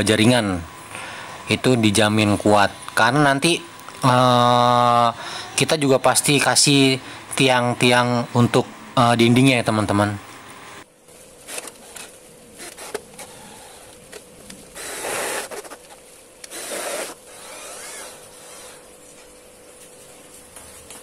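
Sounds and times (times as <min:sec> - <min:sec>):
cordless drill driving screws: 0:14.8 - 0:15.7, 0:16.4 - 0:18.8.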